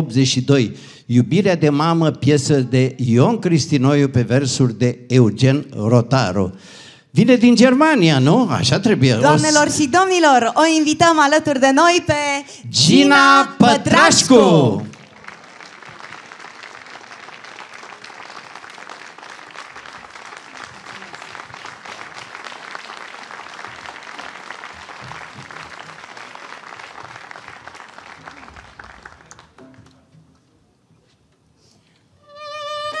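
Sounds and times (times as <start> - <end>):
audience applauding: 12.9 - 30.1.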